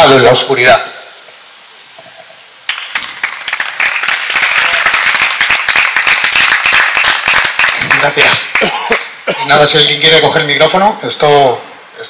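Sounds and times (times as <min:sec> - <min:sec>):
audience applauding: 0:02.7 - 0:09.2.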